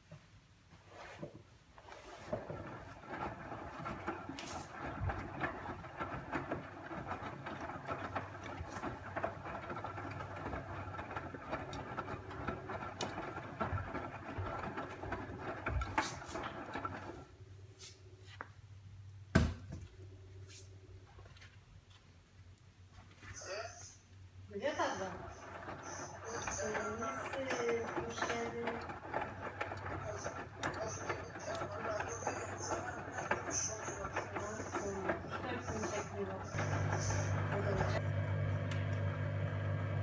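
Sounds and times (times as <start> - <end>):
motor-driven machine whining: 24.7 - 40.0.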